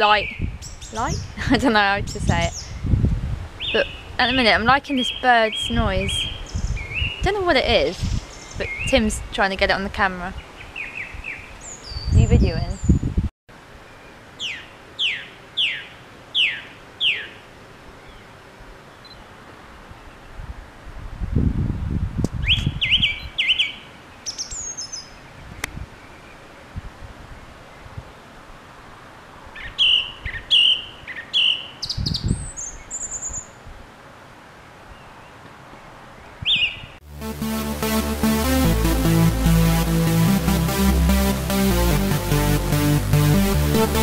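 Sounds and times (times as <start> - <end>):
song thrush singing: 0.0 - 9.4, 10.3 - 13.2, 13.8 - 17.4, 22.3 - 26.4, 29.6 - 33.6, 36.2 - 44.0.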